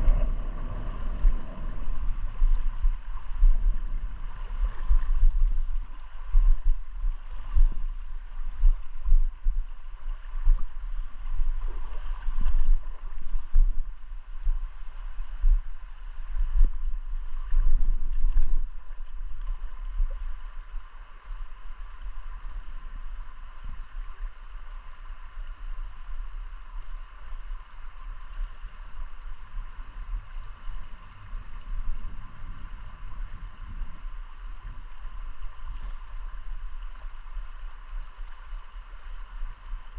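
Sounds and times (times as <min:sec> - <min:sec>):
wind buffeting microphone: 0:00.0 - 0:14.8, 0:30.0 - 0:36.8
river water flowing over rocks: 0:00.0 - 0:39.9.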